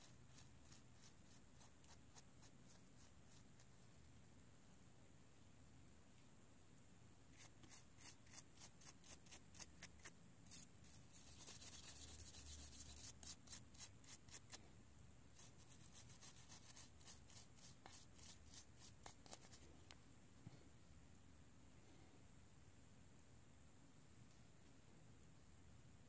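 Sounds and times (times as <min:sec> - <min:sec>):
brush scrubbing metal: 0:07.4 - 0:14.6.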